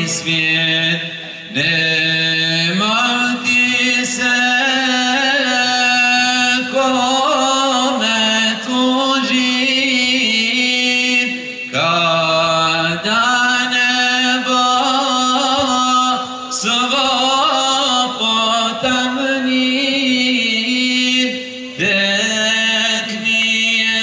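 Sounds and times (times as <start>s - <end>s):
male vocal group chanting: 0.0s - 24.0s.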